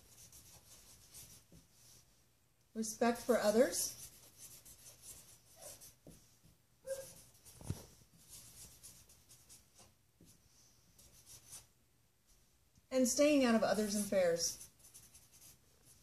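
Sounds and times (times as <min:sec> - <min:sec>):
marker scratching on whiteboard: 0:00.0 - 0:01.9, 0:02.9 - 0:11.7, 0:13.3 - 0:16.0.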